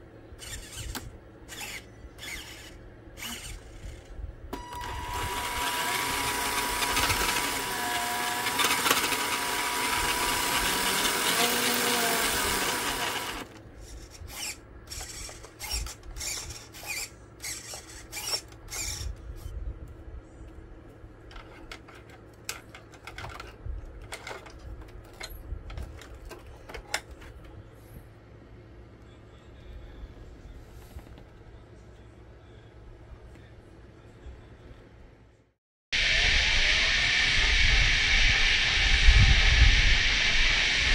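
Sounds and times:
toy car motor whirring: 0.4 - 19.5.

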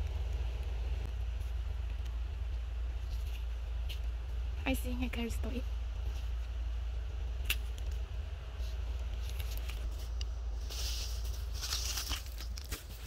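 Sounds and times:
steady low rumble: 0.0 - 13.0
plastic litter rustling: 10.6 - 13.0.

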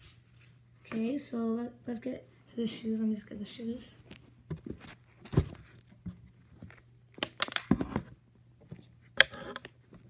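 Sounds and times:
thumps and rustles of handling: 4.1 - 9.0.

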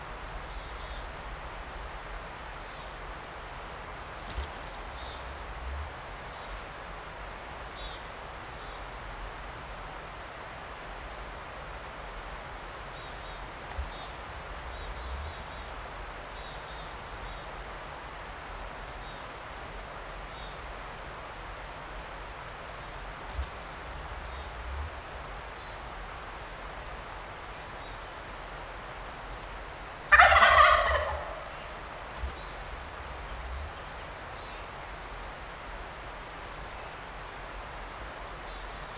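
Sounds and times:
songbirds chirping: 0.0 - 38.9
turkey gobbling: 30.1 - 31.6.

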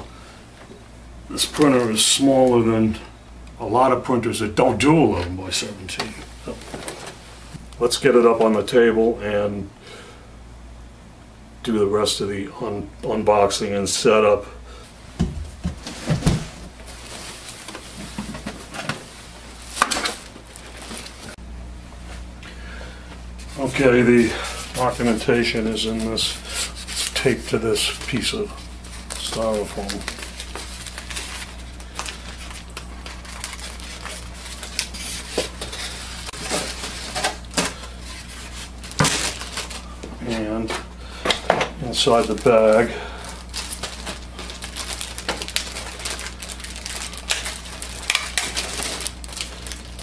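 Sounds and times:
packing material rustling: 15.6 - 21.4, 23.5 - 40.9, 41.8 - 50.0.

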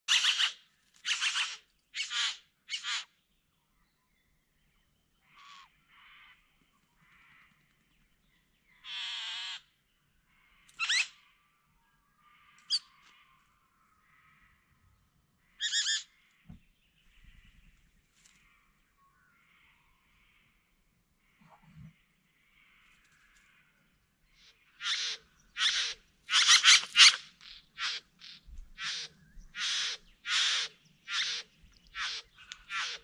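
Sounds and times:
bird harsh calls: 0.1 - 3.2, 8.7 - 9.8, 10.4 - 11.5, 15.4 - 16.4, 21.5 - 33.0.

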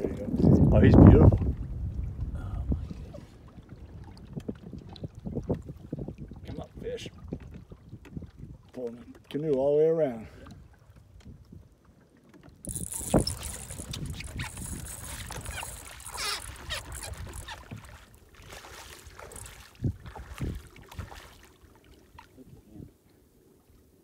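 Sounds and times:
water sloshing against a canoe: 0.0 - 24.0
thumps on a canoe: 12.4 - 21.1.

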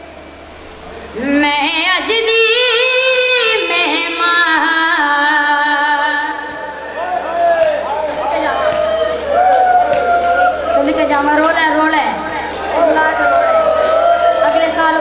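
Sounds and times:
boy chanting a lament: 10.8 - 13.6.

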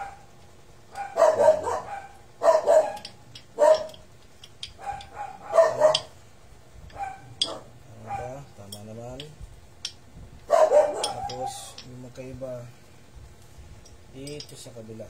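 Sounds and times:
dog barking: 0.0 - 0.3, 0.9 - 3.0, 3.6 - 4.0, 4.8 - 6.1, 6.9 - 8.4, 10.5 - 11.7.

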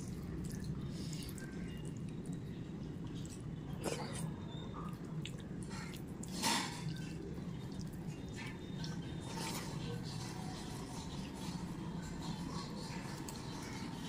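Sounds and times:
wet chewing and lip smacks: 0.0 - 9.1
steady low hum: 0.0 - 14.0.

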